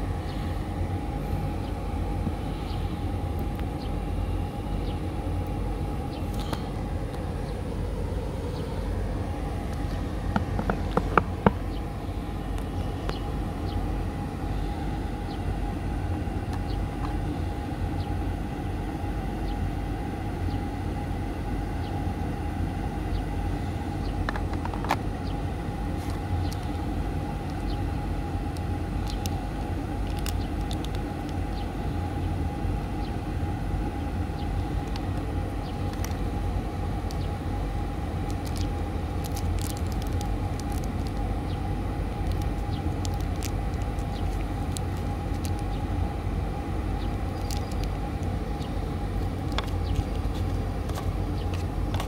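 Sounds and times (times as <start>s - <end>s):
faint hum: 0.0s - 52.0s
low outdoor rumble: 0.0s - 52.0s.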